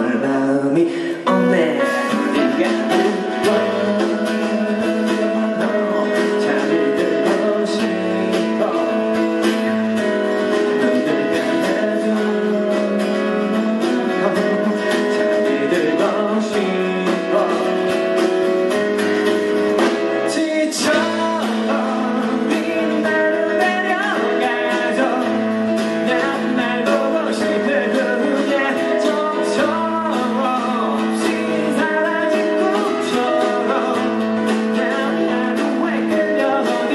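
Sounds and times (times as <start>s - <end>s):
man singing: 0.0s - 36.9s
strummed acoustic guitar: 0.0s - 36.9s.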